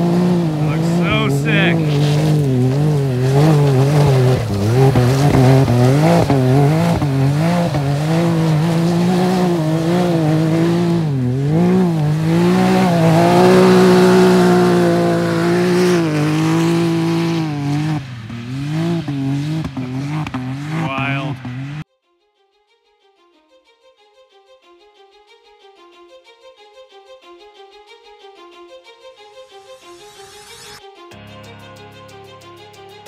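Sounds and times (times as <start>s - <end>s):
engine revving: 0.0s - 21.8s.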